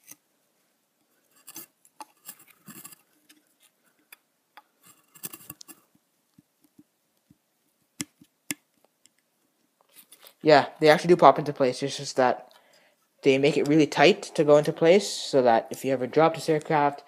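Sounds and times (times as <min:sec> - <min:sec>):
metal model clicking and scraping: 0:01.2 - 0:04.2, 0:04.8 - 0:05.9.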